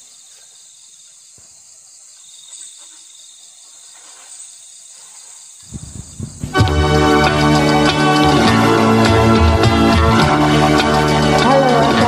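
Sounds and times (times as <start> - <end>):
crickets chirping: 0.0 - 12.0
backing track music: 6.4 - 12.0.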